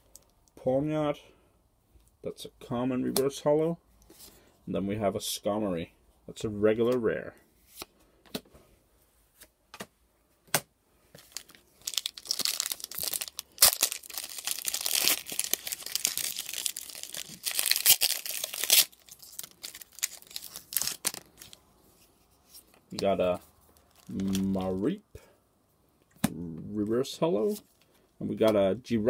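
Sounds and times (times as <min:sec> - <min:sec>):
foil wrapper crinkling: 0:11.2 - 0:21.6, 0:23.7 - 0:24.8.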